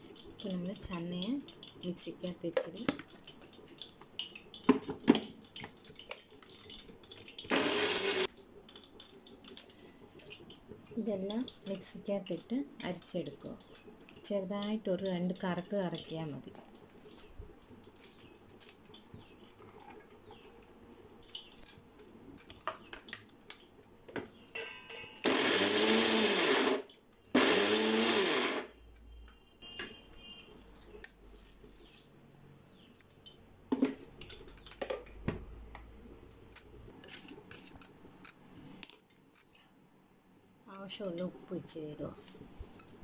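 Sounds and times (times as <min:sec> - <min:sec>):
mixer grinder motor: 0:07.5 - 0:08.3, 0:25.2 - 0:28.7.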